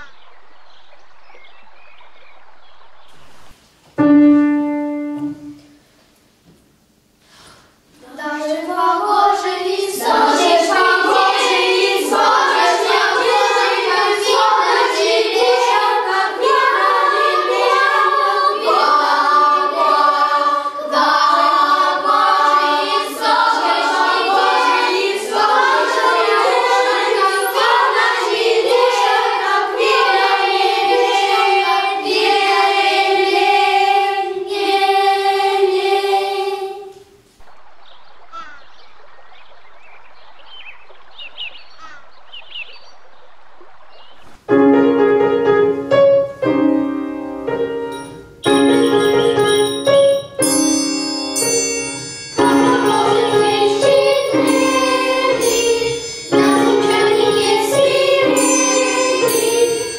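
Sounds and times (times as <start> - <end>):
children's choir singing: 3.2 - 5.8, 8.1 - 37.4, 47.4 - 59.9.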